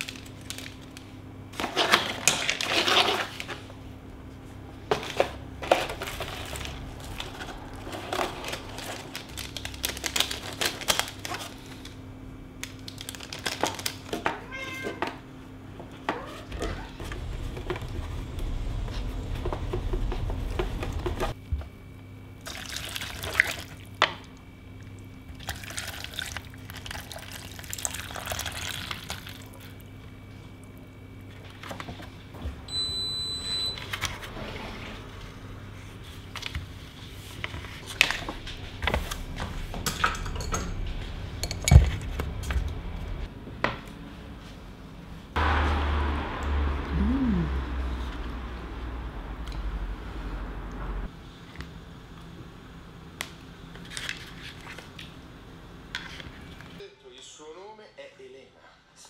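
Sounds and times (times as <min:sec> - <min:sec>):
water pouring into paper cup: 0:22.4 - 0:23.8, 0:25.4 - 0:29.7.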